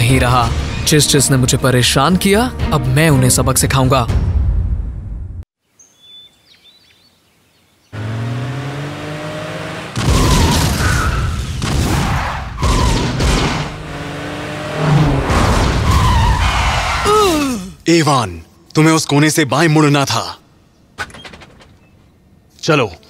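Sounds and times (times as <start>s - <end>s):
faint birdsong: 5.6s - 8.1s, 20.2s - 23.0s
car engine revving: 8.0s - 11.4s, 12.0s - 17.0s
tyres squealing: 15.8s - 17.8s.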